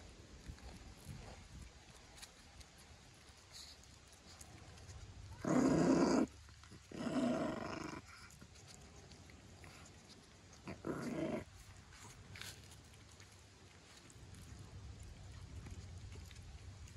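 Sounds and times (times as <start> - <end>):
dog growling: 5.4 - 8.4, 10.5 - 12.2.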